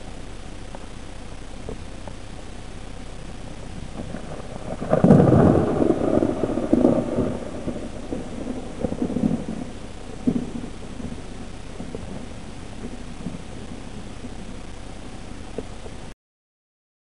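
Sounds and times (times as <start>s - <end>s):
thunder crack and rumble: 3.3s - 16.0s.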